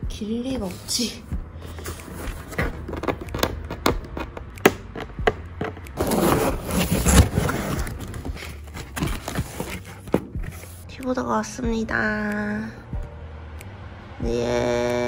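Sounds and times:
cardboard box scraping rustle: 0:01.7 - 0:04.3, 0:06.0 - 0:10.8.

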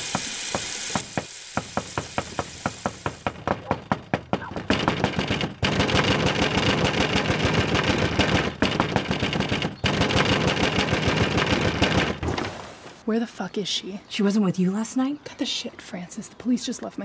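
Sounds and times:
heavy pounding on door: 0:01.6 - 0:12.3.

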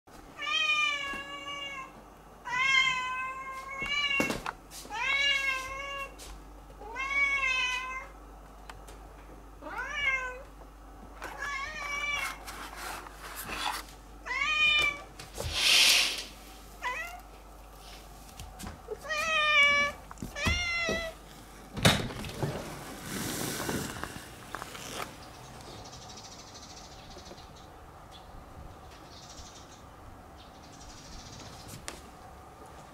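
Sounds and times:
rustling: 0:22.2 - 0:25.7.

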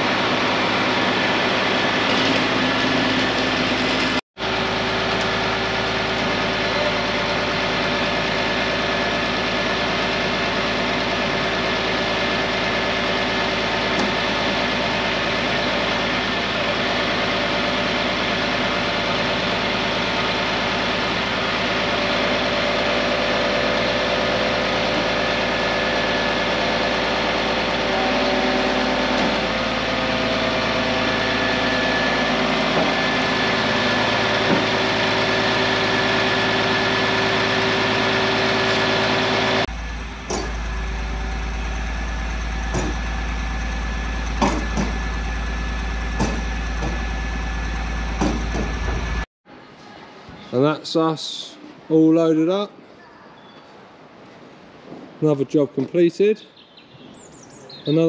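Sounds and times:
diesel engine droning: 0:00.0 - 0:49.3
sharp knocks: 0:42.7 - 0:43.0, 0:46.2 - 0:47.0, 0:48.2 - 0:49.1.

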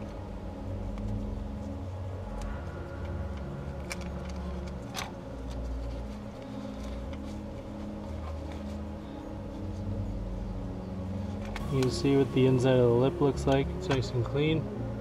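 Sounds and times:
background music with bass: 0:00.0 - 0:15.0
metal parts clicking: 0:03.3 - 0:05.7.

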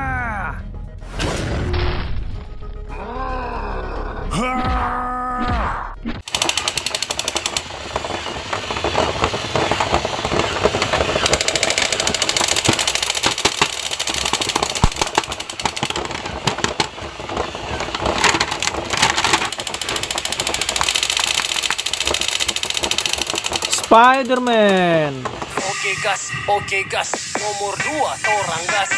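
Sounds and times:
plastic figures clattering: 0:06.2 - 0:25.5.

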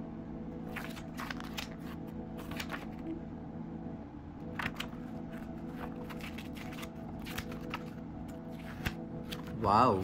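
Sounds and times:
steady low hum: 0:00.0 - 0:10.0
pages turning: 0:00.7 - 0:03.1, 0:04.5 - 0:09.6.

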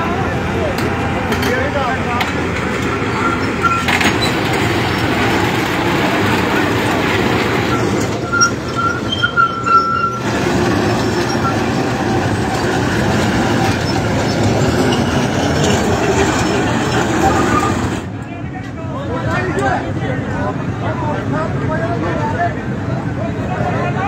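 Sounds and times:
excavator diesel engine under load: 0:00.0 - 0:18.2
high squeal: 0:02.8 - 0:18.1.

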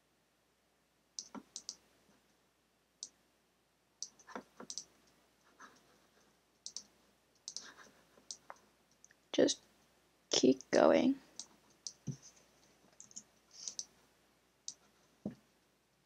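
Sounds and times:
faint computer mouse clicks: 0:01.2 - 0:01.8, 0:04.0 - 0:04.9, 0:06.6 - 0:09.2, 0:13.0 - 0:13.9.

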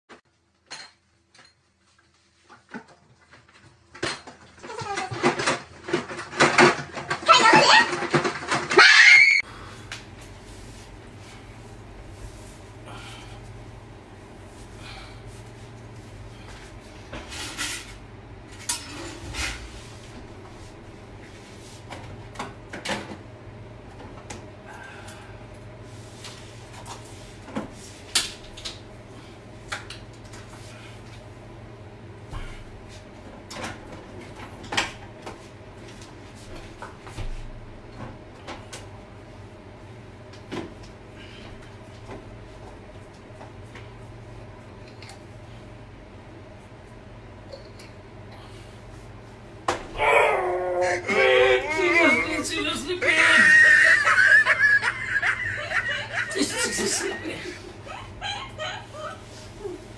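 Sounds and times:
items rattling in refrigerator: 0:02.5 - 0:09.4
steady low hum: 0:09.4 - 0:59.9.

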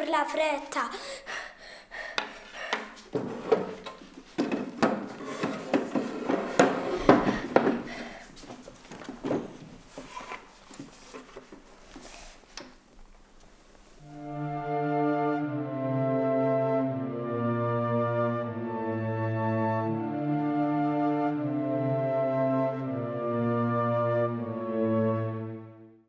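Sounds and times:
dishes clattering on a table: 0:02.8 - 0:07.9.

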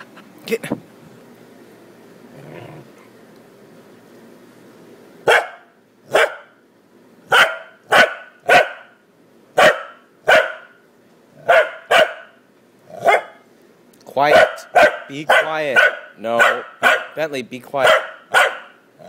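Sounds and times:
dog barking: 0:05.2 - 0:06.6, 0:07.3 - 0:09.0, 0:09.6 - 0:10.8, 0:11.4 - 0:12.4, 0:13.0 - 0:13.4, 0:14.3 - 0:17.2, 0:17.8 - 0:18.8.

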